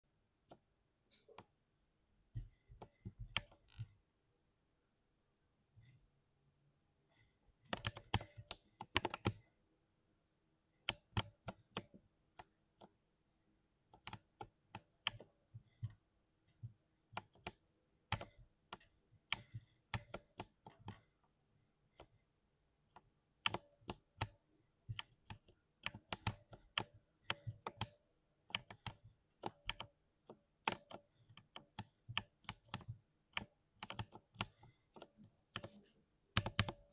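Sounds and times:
mechanical keyboard clacks: 35.5 - 36.9.

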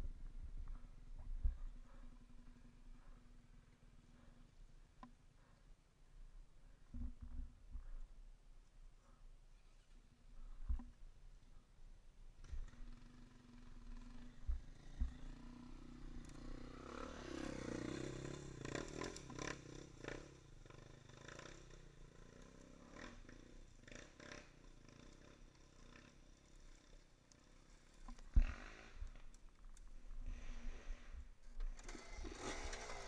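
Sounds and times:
motorcycle engine revving: 12.5 - 27.6, 28.2 - 29.4, 31.7 - 33.0
motorcycle engines running: 12.5 - 31.0.

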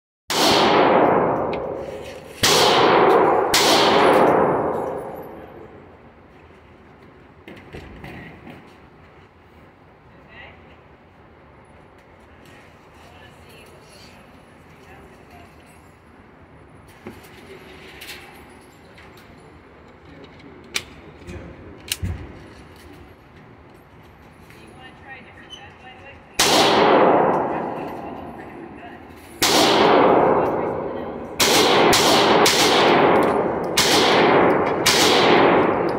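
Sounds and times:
pistol shots echoing: 0.3 - 1.8, 2.4 - 5.7, 26.4 - 28.4, 29.4 - 35.9.

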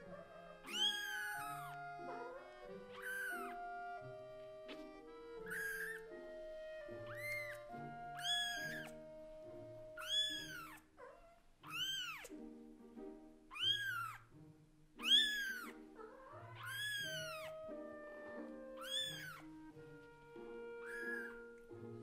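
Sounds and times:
soft background music: 0.0 - 22.0
kitten meowing loudly: 0.1 - 3.6, 5.4 - 6.1, 7.0 - 8.9, 10.0 - 12.3, 13.5 - 14.2, 15.0 - 19.4, 20.7 - 21.5.

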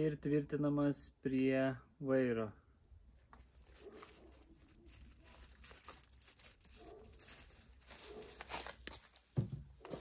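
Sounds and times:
plastic bag rustling: 3.2 - 10.0.

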